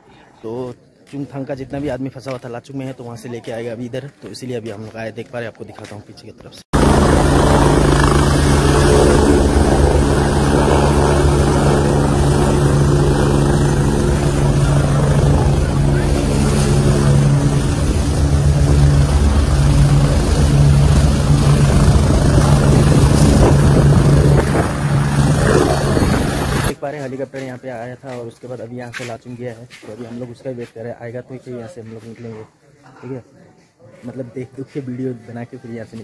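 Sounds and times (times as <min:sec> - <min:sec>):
helicopter rotor and engine drone: 0:06.8 - 0:26.8.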